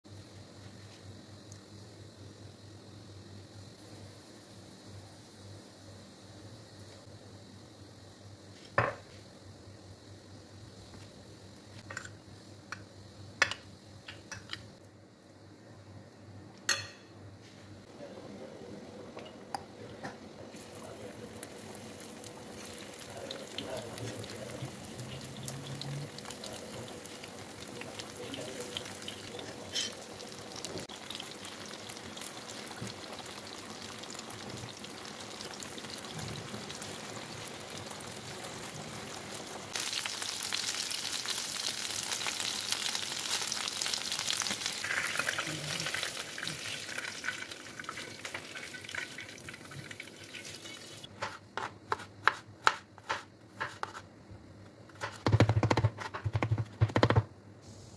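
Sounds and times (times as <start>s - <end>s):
chicken frying in hot oil: 20.3s - 51.1s
knife chopping on wooden board: 51.2s - 54.0s, 55.0s - 57.3s.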